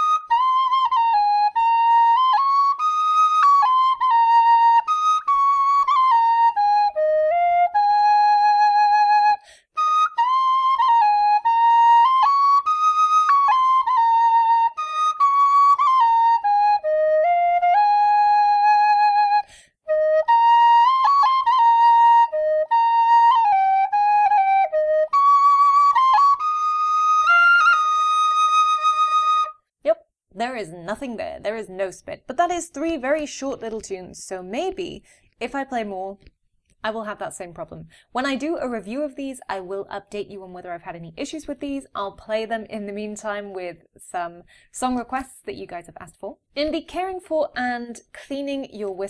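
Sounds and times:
tin whistle playing a tune: 0:00.0 - 0:29.7.

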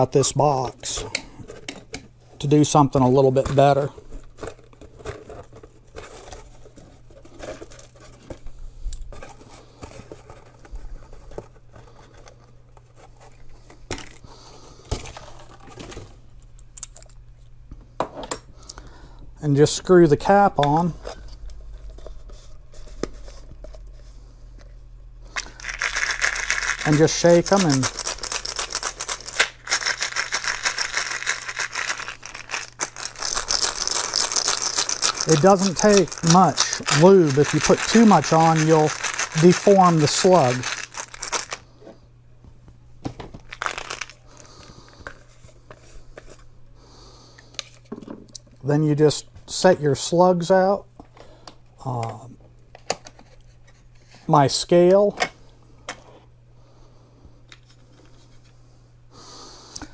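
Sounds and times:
metal slugs rattling in a container: 0:25.4 - 0:41.6, 0:43.5 - 0:44.2.

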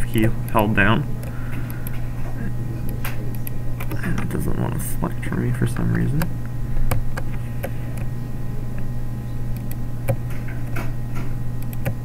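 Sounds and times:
low electrical hum: 0:00.0 - 0:12.0
computer mouse clicking: 0:02.9 - 0:04.3, 0:09.5 - 0:10.8, 0:11.6 - 0:12.0.

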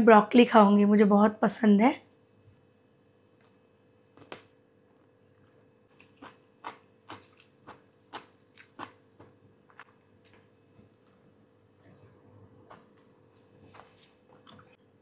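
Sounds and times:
faint steady hum: 0:00.0 - 0:15.0
person chewing noodles: 0:04.7 - 0:15.0.

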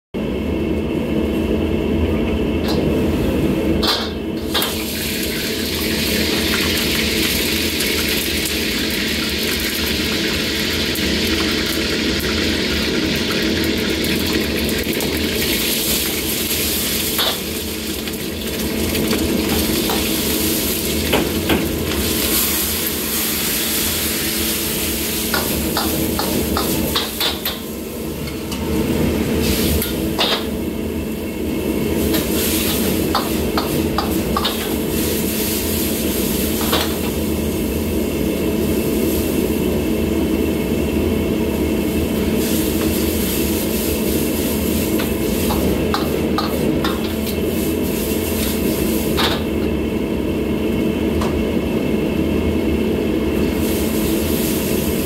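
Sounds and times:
gas burner rushing: 0:02.6 - 0:55.0
food sizzling in hot oil: 0:04.4 - 0:27.9, 0:31.7 - 0:39.8, 0:41.8 - 0:49.2, 0:53.3 - 0:55.0.

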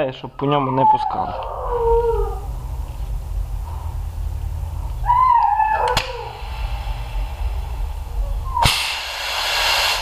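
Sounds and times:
compressed air rushing: 0:05.9 - 0:10.0.

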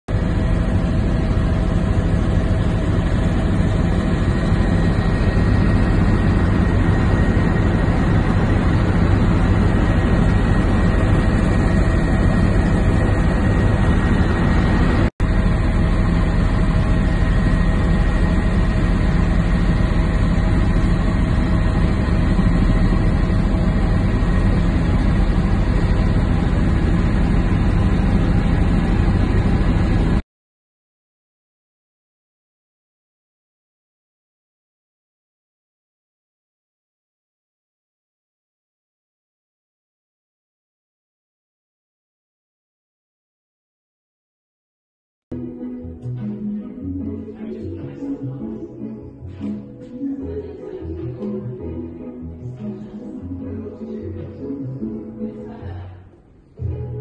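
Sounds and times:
helicopter engine and rotor drone: 0:00.1 - 0:30.2
steady high whine: 0:00.1 - 0:30.2.

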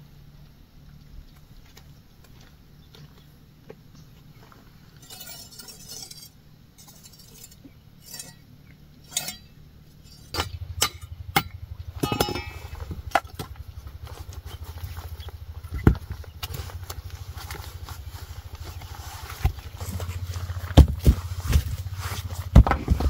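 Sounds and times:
light clinks and knocks: 0:09.0 - 0:13.6
small engine running: 0:10.1 - 0:23.0.

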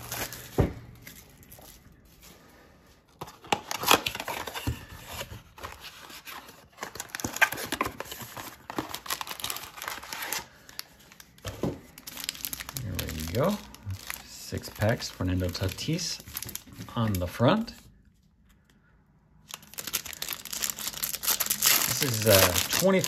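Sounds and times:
plastic shrink-wrap crinkling: 0:06.1 - 0:17.8, 0:19.4 - 0:23.0.

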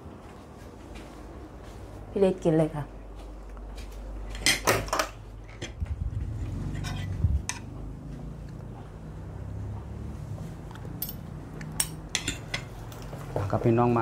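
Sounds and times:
cutlery clinking on a plate: 0:11.8 - 0:12.7.

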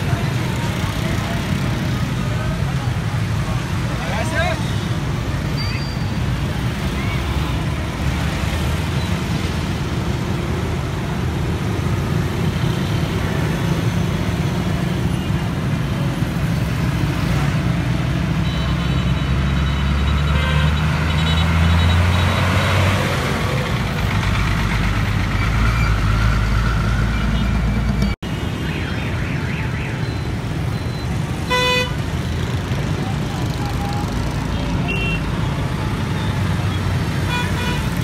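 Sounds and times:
street traffic noise: 0:00.0 - 0:38.0
diesel engine rumbling: 0:20.8 - 0:28.3.

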